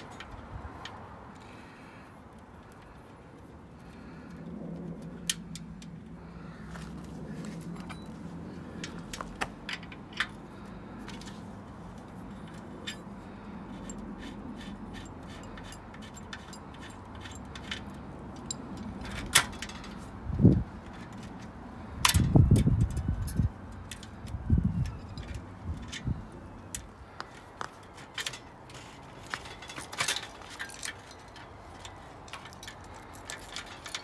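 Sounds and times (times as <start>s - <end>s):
ring spanner clicking on axle nut: 13.7s - 20.0s.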